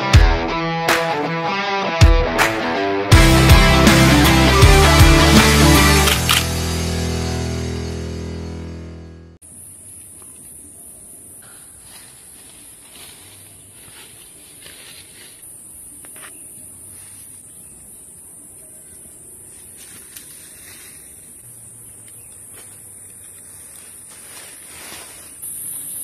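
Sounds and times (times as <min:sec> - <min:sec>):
faint rustles on dry leaves: 0:09.7 - 0:26.0
high-pitched insect drone: 0:25.0 - 0:26.0.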